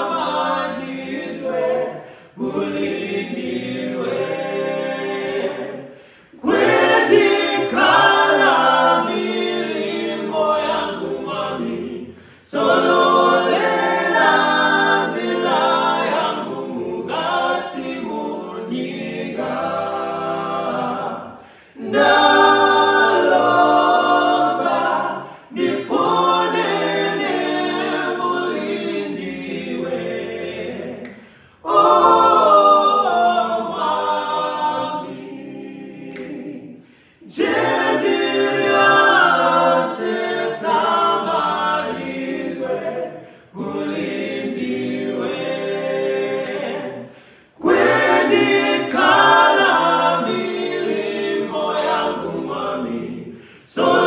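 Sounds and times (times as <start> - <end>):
male group singing a cappella: 0.0 - 54.0
singers breathing: 2.0 - 2.4, 5.8 - 6.4, 12.1 - 12.5, 21.3 - 21.8, 25.2 - 25.6, 31.1 - 31.6, 36.7 - 37.3, 43.1 - 43.6, 47.0 - 47.6, 53.3 - 53.8.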